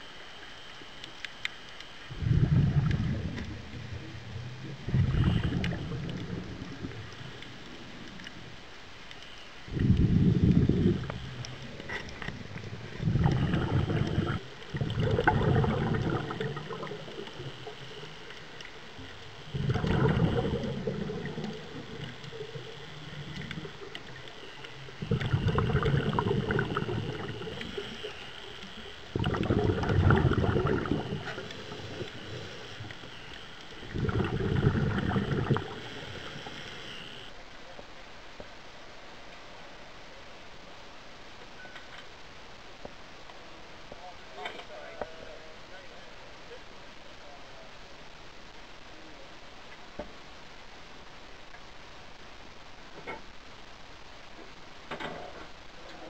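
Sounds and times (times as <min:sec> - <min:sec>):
underwater exhaled bubbles: 0:00.2 - 0:37.5.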